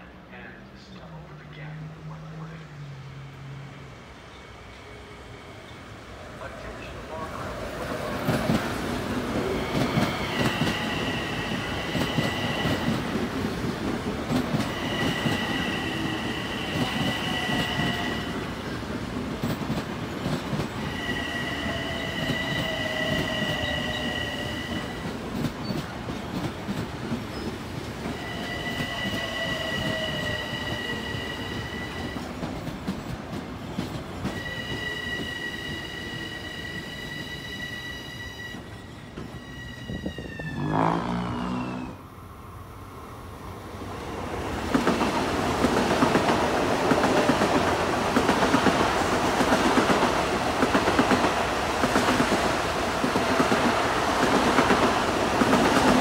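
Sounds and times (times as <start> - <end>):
train rumbling past: 0.0 - 56.0
high wheel squeal: 14.7 - 18.5, 20.8 - 25.0, 28.1 - 32.2, 34.3 - 42.0.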